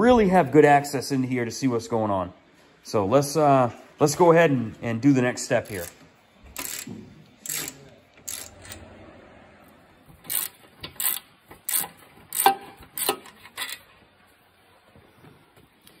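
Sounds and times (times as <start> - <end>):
socket ratchet clicking: 6.6 - 8.7, 10.2 - 13.8.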